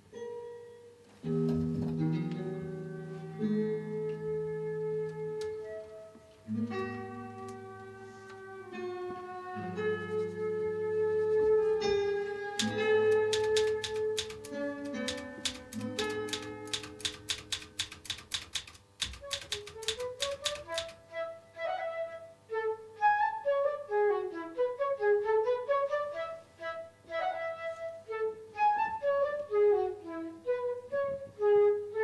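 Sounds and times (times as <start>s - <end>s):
flute-like woodwind melody: 2.6s - 16.6s, 19.2s - 32.0s
typewriter keys clacking: 12.6s - 21.0s.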